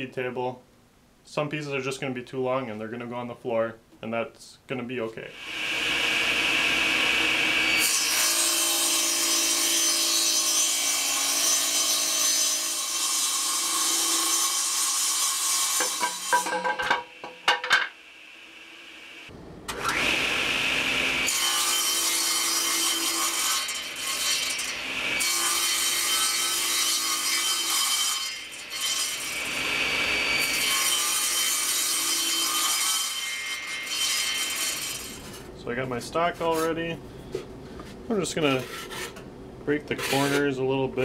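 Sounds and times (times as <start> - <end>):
table saw cutting wood: 5.3 - 35.4
wooden board clattering on floor: 15.8 - 17.9.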